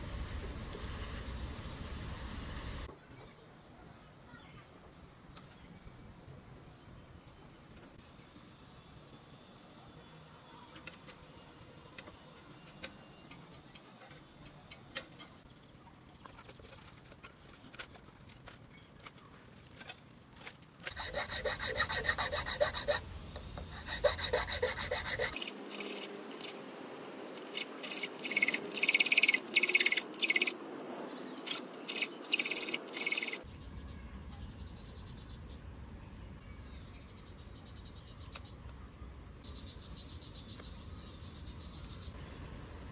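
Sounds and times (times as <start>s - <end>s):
hand tool rasping strokes: 20.8s - 23.0s, 23.7s - 26.6s, 27.4s - 30.5s, 31.5s - 33.4s.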